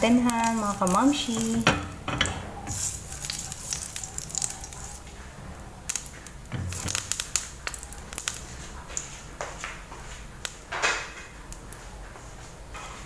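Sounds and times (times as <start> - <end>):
oil crackling: 0.0 - 10.7
spatula scraping frying pan: 0.2 - 5.1.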